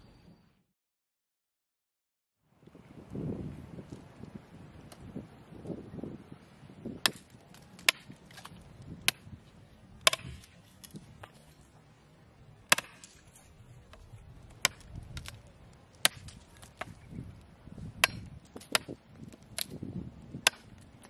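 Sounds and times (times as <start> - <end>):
knife chopping into wood: 10.0 - 10.5, 12.7 - 13.2.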